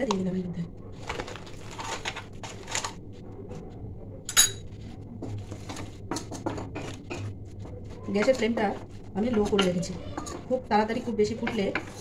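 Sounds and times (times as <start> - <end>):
liquid being stirred: 5.4 - 12.0.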